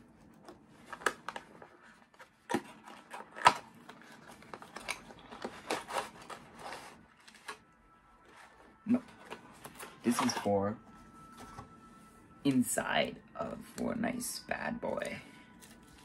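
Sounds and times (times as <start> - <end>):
packaging rustling and scraping: 0.0 - 12.0, 14.9 - 16.0.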